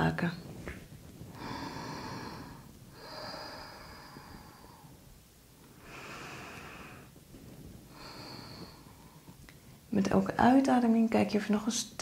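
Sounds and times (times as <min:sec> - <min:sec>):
woman breathing slowly: 0:01.1 - 0:09.9.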